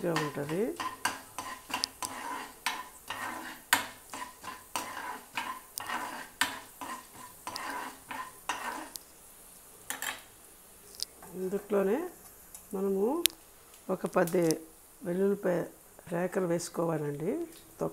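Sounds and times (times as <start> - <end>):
ladle scraping a pan: 0.0 - 9.0
seeds sizzling in oil: 0.0 - 17.9.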